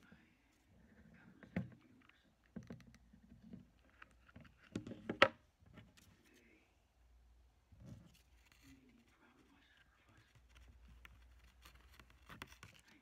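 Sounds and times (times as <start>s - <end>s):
paper rustling: 8.0s - 13.0s.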